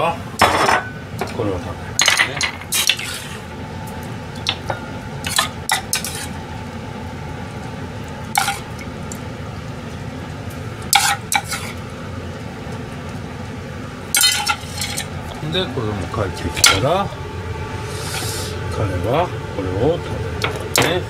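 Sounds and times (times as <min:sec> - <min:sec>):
metal spoon scraping a pan: 0:05.3 - 0:06.4, 0:10.9 - 0:11.8
low hum: 0:12.0 - 0:20.8.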